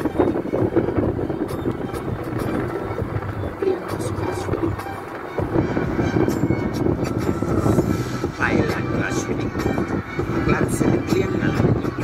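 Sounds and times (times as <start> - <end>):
car engine and road rumble: 0.0 - 12.0
music playing: 0.0 - 12.0.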